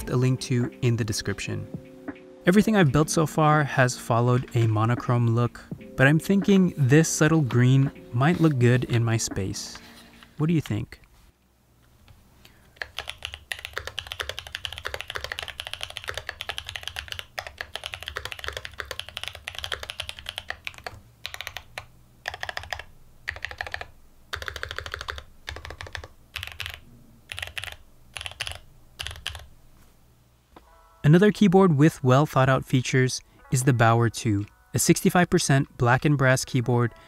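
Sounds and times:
mechanical keyboard typing: 12.8s - 29.5s.

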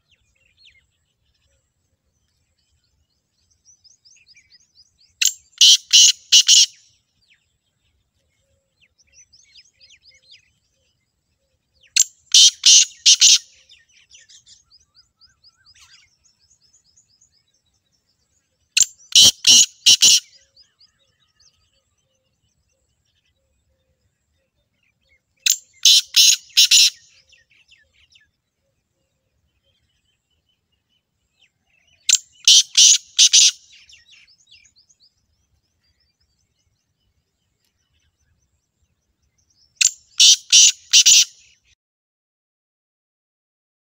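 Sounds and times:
small birds chirping: 0.0s - 41.8s
francolin calling: 5.2s - 6.8s, 11.9s - 16.0s, 18.8s - 21.0s, 25.5s - 27.5s, 31.9s - 34.8s, 39.8s - 41.4s.

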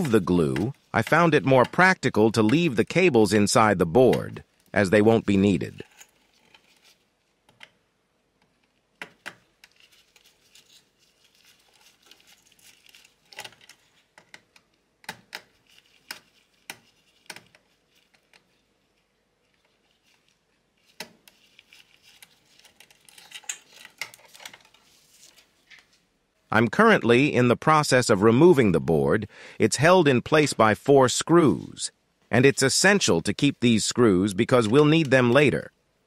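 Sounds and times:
wires rustling: 0.0s - 7.7s, 8.4s - 26.1s.

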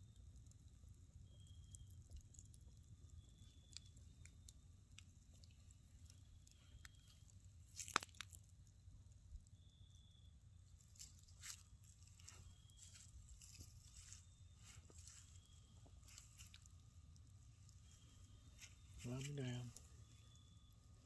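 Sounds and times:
campfire crackling: 0.0s - 21.0s
sharp fire pops: 7.7s - 8.4s.

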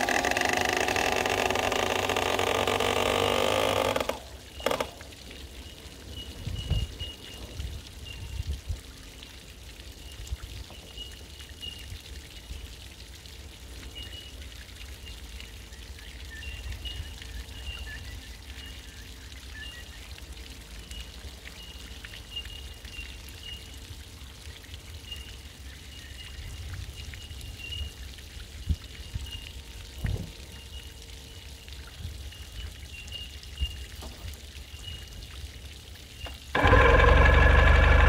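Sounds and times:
outboard motor running: 0.0s - 5.0s, 36.5s - 38.0s
water pouring and trickling: 0.0s - 38.0s.

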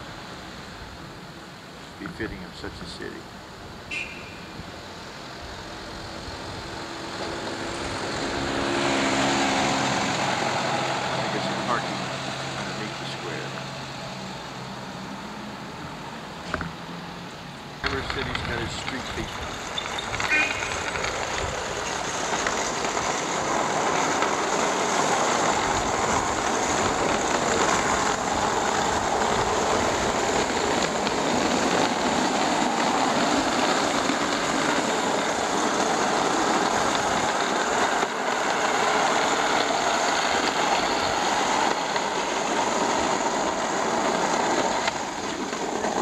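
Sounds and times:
city street traffic hum: 0.0s - 46.0s.

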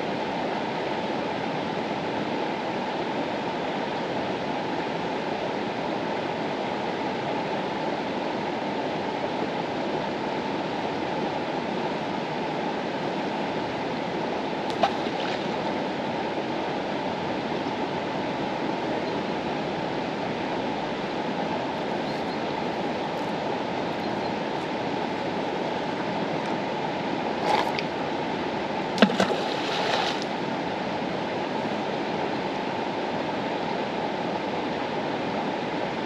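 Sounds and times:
river rushing: 0.0s - 36.0s.

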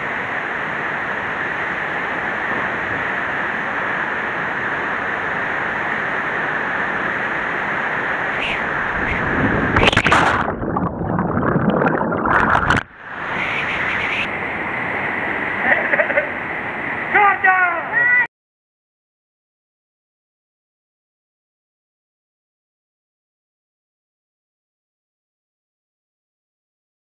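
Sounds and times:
water splashing and churning: 2.0s - 17.2s
waterfall rushing: 6.0s - 10.6s, 11.2s - 18.3s.

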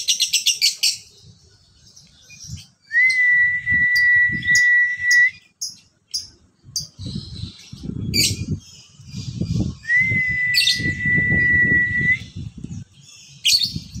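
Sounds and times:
long steady whistle: 2.9s - 5.4s, 9.9s - 12.3s
bird chirping: 4.0s - 10.0s.

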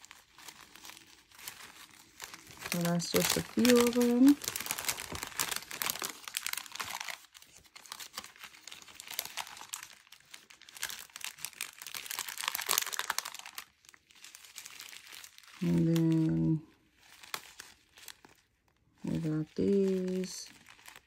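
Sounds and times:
plastic bag crinkling: 0.0s - 21.0s.

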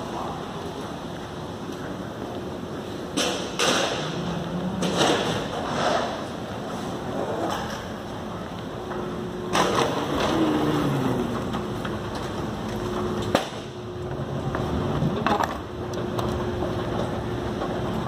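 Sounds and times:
suitcase wheels rolling on floor: 4.0s - 13.3s, 14.0s - 18.0s.

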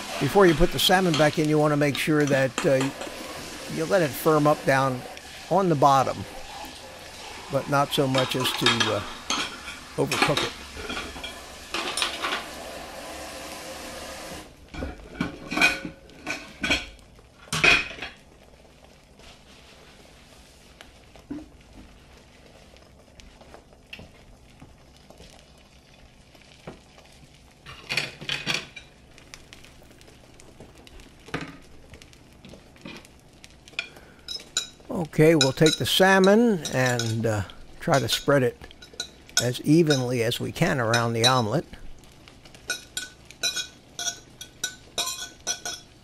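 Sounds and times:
eggs sizzling in a pan: 0.0s - 46.0s
steady hiss: 0.0s - 46.0s
utensils and dishes clinking: 0.1s - 3.1s, 7.8s - 12.5s, 14.8s - 16.9s, 33.8s - 41.6s, 42.7s - 46.0s.

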